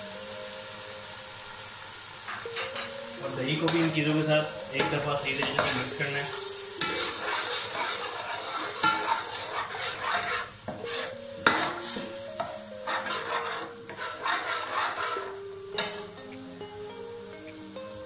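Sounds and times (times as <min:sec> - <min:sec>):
food sizzling in oil: 0:00.0 - 0:18.0
spatula scraping pot: 0:04.8 - 0:16.0
metal clinking on pot: 0:06.8 - 0:10.8.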